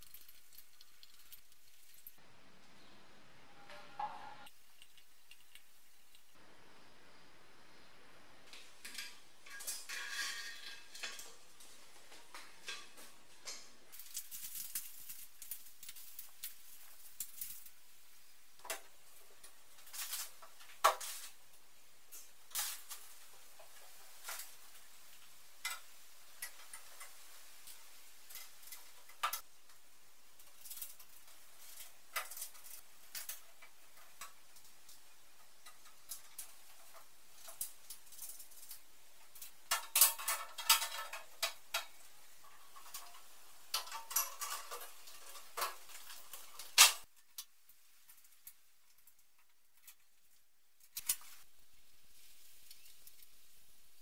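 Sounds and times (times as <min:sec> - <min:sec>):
sheet metal panels clanking: 0:08.8 - 0:11.5.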